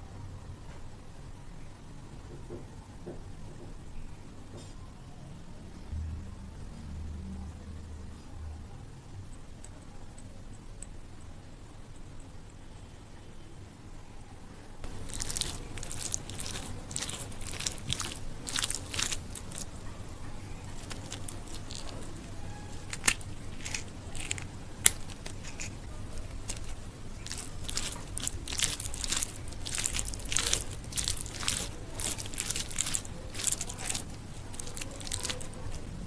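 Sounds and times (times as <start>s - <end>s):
dried chilli crushing: 14.8s - 36.0s
fingers squishing rice: 14.8s - 36.0s.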